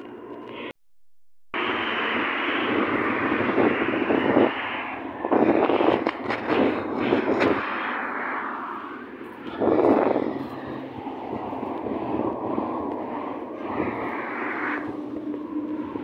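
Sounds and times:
road traffic roaring past: 0.0 - 0.8, 1.6 - 16.0.

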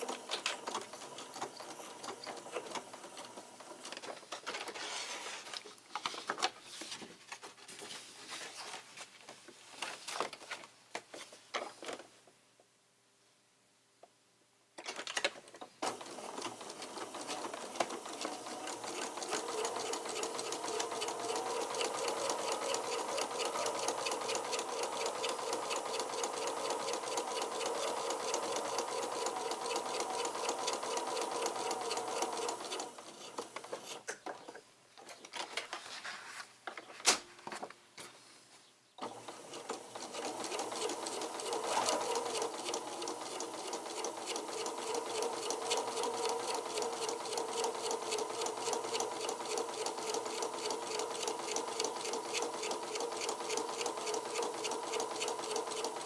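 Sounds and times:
sewing machine stitching: 0.0 - 4.0, 15.8 - 34.0, 39.0 - 56.0.

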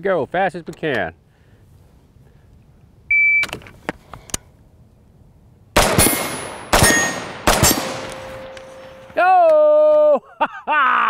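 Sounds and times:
rifle shots with echo: 5.8 - 9.2.

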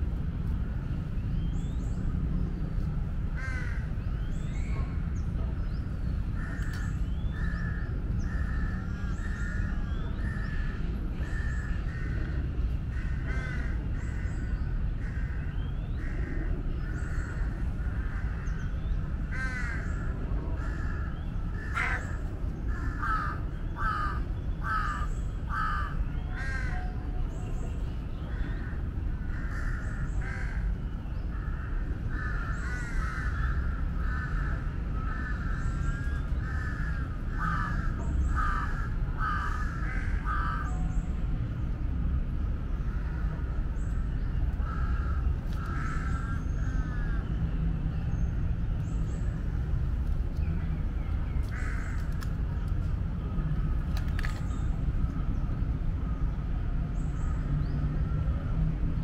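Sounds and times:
steady low rumble: 0.0 - 59.0
crows cawing: 3.4 - 3.9, 6.4 - 9.7, 12.9 - 14.2, 19.3 - 26.9, 28.3 - 30.7, 31.3 - 40.8, 44.6 - 47.2, 51.5 - 52.1.

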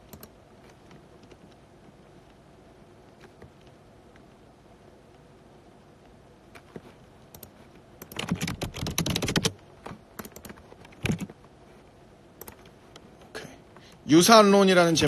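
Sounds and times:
keyboard key clicks: 7.3 - 11.4, 12.4 - 12.7.

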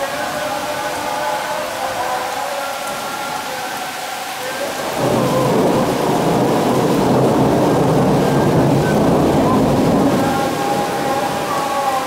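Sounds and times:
heavy rain: 0.0 - 12.0
thunder rumbling: 4.9 - 12.0.

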